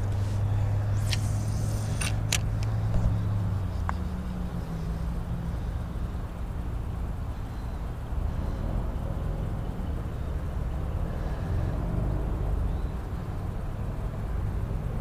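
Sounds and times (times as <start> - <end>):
low engine hum: 0.0 - 15.0
sharp clicks: 1.0 - 3.1.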